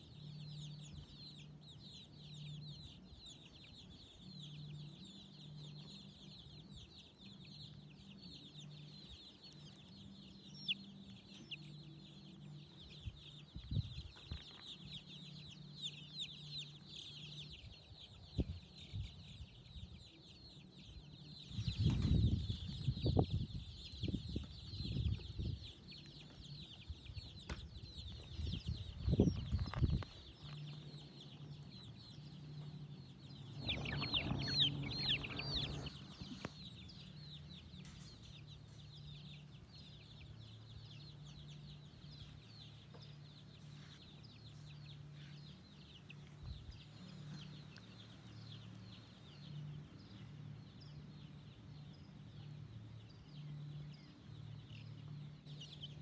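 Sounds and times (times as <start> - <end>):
chicks cheeping: 0.0 - 56.0
low rumbles: 27.6 - 37.7.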